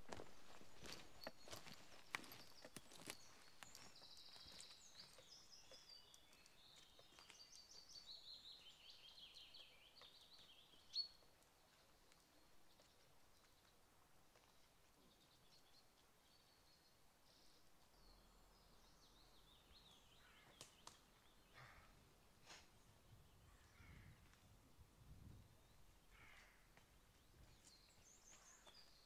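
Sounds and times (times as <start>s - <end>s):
faint footsteps: 0.0s - 8.0s, 9.9s - 15.1s, 26.3s - 29.0s
faint songbird song: 0.0s - 29.0s.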